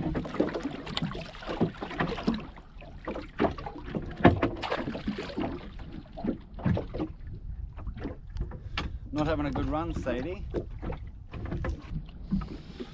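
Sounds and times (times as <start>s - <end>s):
wind rumble on microphone: 3.6s - 12.9s.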